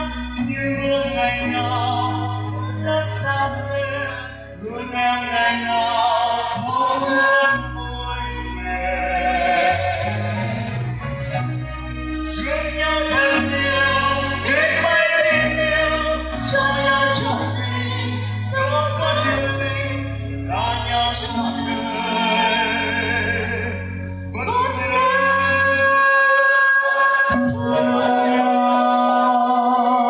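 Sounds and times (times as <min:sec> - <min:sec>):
low bass notes: 0:00.0 - 0:26.2
instrumental accompaniment: 0:00.0 - 0:30.0
person singing with vibrato: 0:00.0 - 0:30.0.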